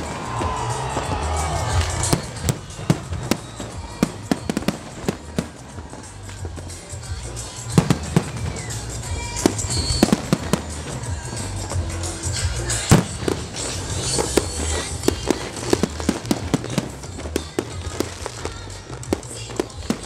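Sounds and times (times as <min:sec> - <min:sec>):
fireworks bursting: 0:00.0 - 0:20.0
music with low bass: 0:00.0 - 0:20.0.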